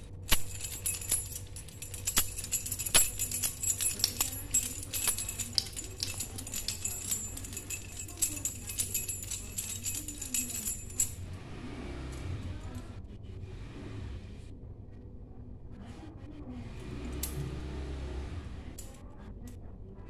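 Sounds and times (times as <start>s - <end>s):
keys jangling: 0.0s - 11.3s.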